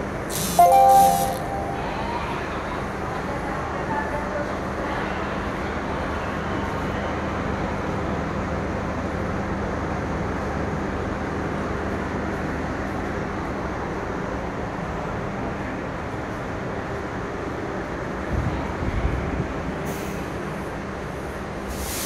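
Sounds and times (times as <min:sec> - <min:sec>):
station din: 0:00.3 - 0:02.3.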